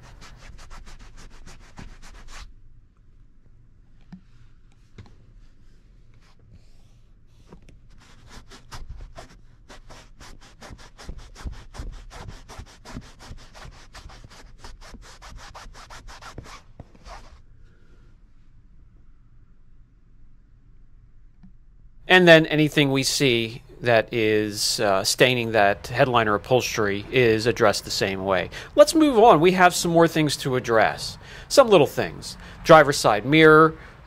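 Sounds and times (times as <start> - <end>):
towel scrubbing fabric: 0.0 - 2.5, 7.9 - 17.4.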